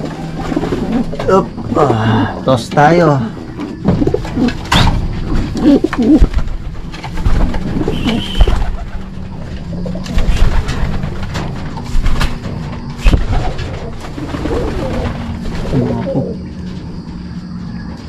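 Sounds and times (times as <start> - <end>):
pigeons cooing: 0.0 - 2.6, 3.2 - 11.1, 12.9 - 17.3
sharp knocks and thumps: 3.7 - 8.7.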